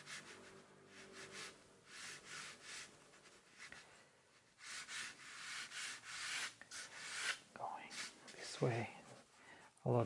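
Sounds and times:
pencil scratching on paper: 0:00.0 - 0:08.2.

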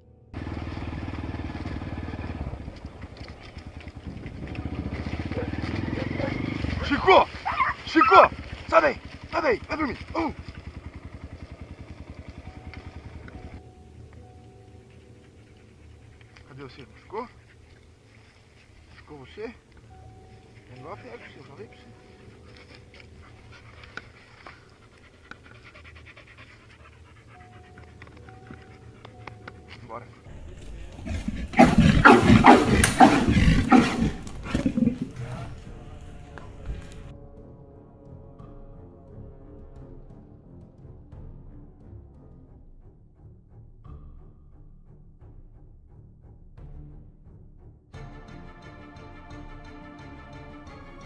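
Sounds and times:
small motorcycle engine running: 0:00.4 - 0:13.7
dog panting: 0:14.5 - 0:19.5, 0:20.3 - 0:37.1
sharp clicks: 0:32.6 - 0:35.1.

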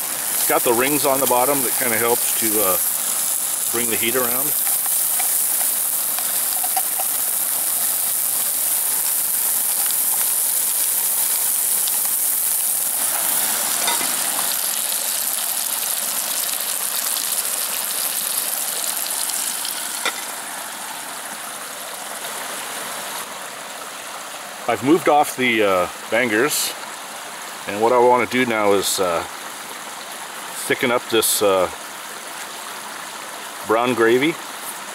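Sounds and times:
sausages sizzling in a frying pan: 0:00.0 - 0:20.8.

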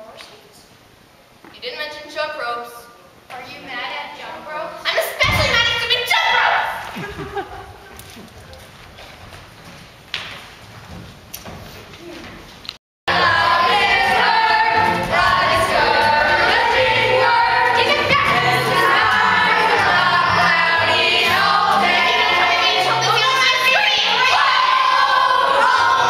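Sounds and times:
acoustic guitar: 0:13.1 - 0:24.0
choir singing: 0:13.1 - 0:26.0.

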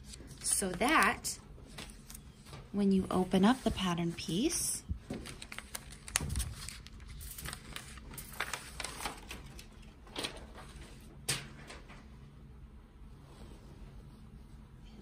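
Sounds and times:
paper rustling: 0:03.3 - 0:11.1.

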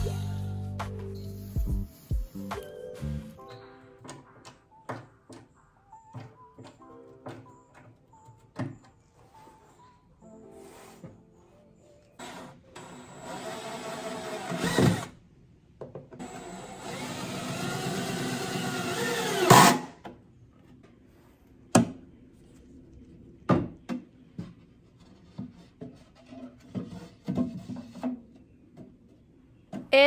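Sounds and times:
power drill running: 0:12.2 - 0:15.1, 0:16.2 - 0:19.9.

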